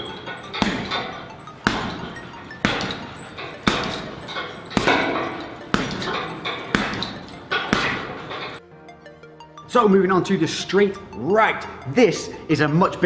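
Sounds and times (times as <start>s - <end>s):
gloved punches on heavy bag: 0.0s - 8.6s.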